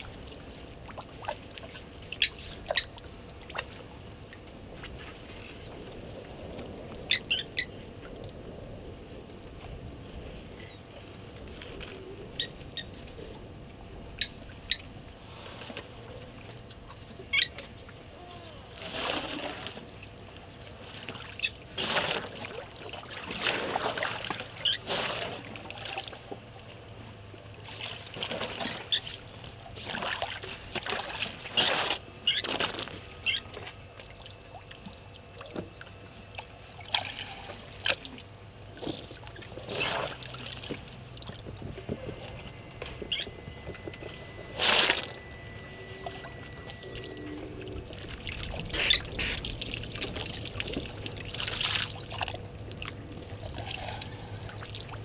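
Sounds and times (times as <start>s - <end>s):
elephants splashing water: 18.8s - 19.8s, 21.8s - 26.0s, 39.2s - 41.1s, 44.2s - 55.0s.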